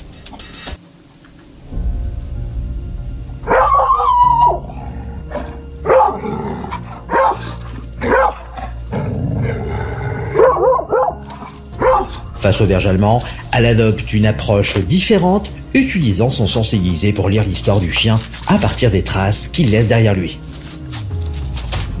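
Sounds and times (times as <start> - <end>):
background music: 0.0 - 22.0
dog barking: 5.8 - 6.2, 7.1 - 8.7, 10.3 - 11.2, 11.8 - 12.2.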